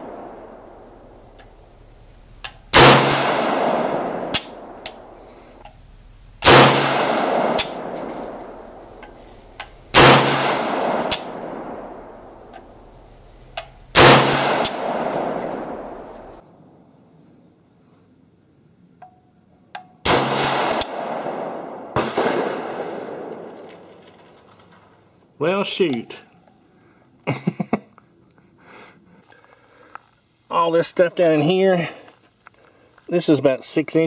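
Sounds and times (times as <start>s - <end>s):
rifle shots with echo: 0.0s - 1.1s, 2.7s - 5.2s, 6.4s - 8.8s, 9.6s - 12.5s, 13.9s - 16.4s, 20.1s - 24.5s.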